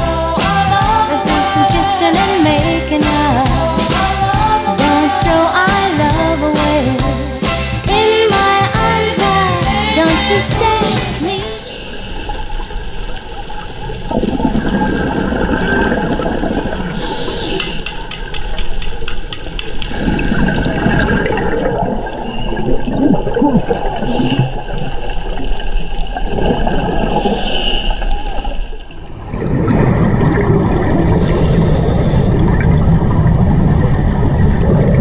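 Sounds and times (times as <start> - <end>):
breathing hiss: 11.4 - 12.6, 16.9 - 18.1, 22.0 - 22.7, 24.0 - 24.6, 27.1 - 28.2, 31.2 - 32.4
exhaled bubbles gurgling underwater: 11.5 - 35.0.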